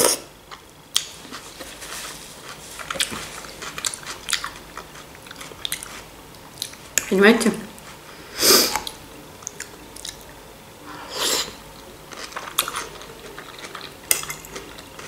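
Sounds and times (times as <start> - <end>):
chewing and biting mouth sounds: 0.0 - 7.1, 8.7 - 10.4, 11.8 - 15.0.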